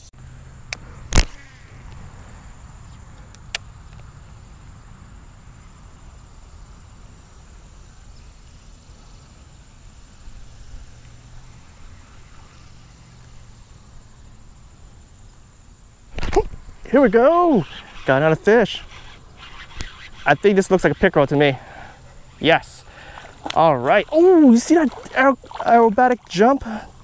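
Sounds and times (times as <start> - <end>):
faint insect hiss: 0.0 - 27.0
sharp click: 0.7 - 2.0, 16.1 - 16.6, 19.4 - 20.1.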